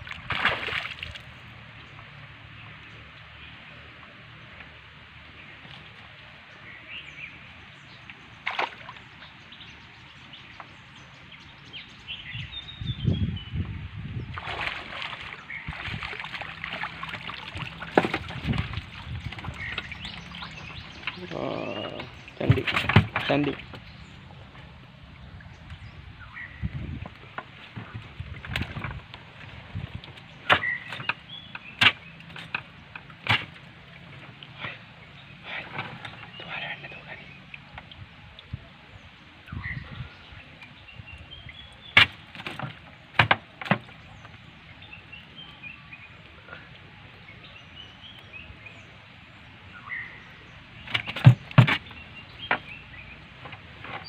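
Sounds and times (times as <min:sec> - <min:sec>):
water splashing and sloshing: 0:00.0 - 0:12.2, 0:13.6 - 0:54.0
birds chirping: 0:00.4 - 0:54.0
knocks on wooden canoe: 0:17.6 - 0:19.9, 0:21.9 - 0:23.8, 0:42.0 - 0:43.9, 0:50.9 - 0:52.7.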